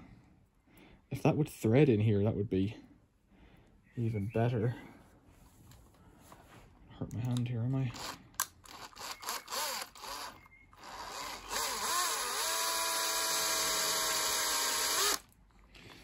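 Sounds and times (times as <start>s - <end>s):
cordless drill running: 7.9s - 15.3s.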